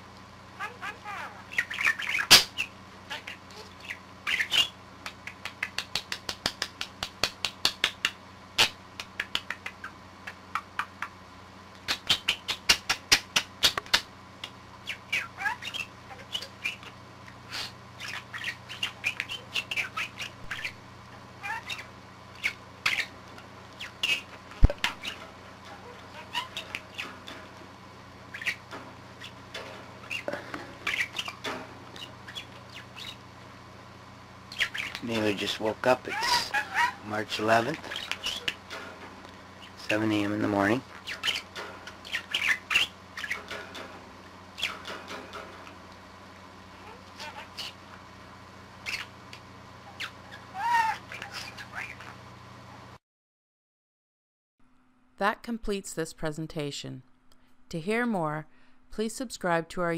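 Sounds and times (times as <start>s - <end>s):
low steady hum: 0.0s - 53.0s, 54.6s - 59.9s
budgerigar chattering: 0.6s - 6.0s, 14.8s - 16.9s, 18.0s - 20.8s, 23.8s - 27.2s, 28.3s - 29.4s, 30.0s - 33.2s, 34.5s - 35.0s, 35.9s - 38.7s, 39.6s - 43.5s.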